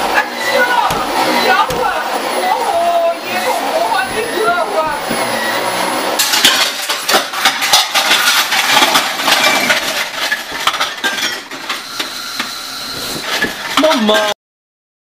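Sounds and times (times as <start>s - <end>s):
dishes and cutlery clattering: 6.2s - 14.4s.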